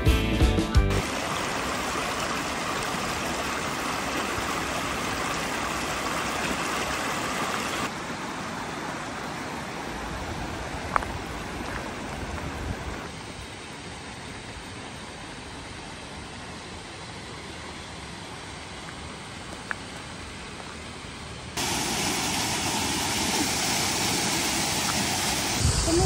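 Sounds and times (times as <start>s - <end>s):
music: 0.0s - 1.0s
stream water rushing: 1.0s - 26.0s.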